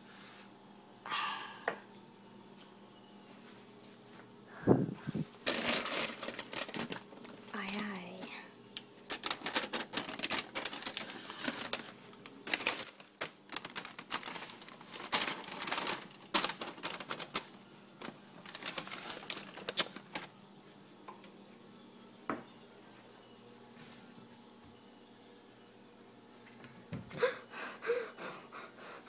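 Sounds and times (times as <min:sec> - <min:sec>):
plastic bag crinkling: 0:05.4 - 0:08.3, 0:09.0 - 0:20.4.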